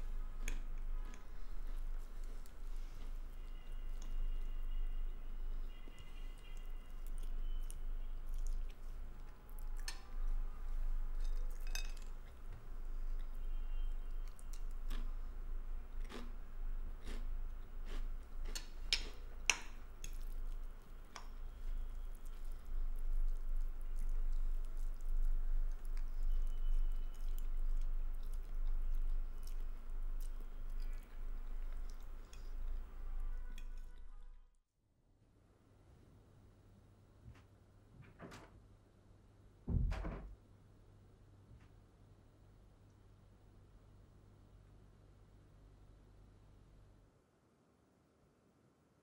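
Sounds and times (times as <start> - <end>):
chewing: 0.0 - 34.2
fork scraping a plate: 17.0 - 20.3, 30.6 - 34.1.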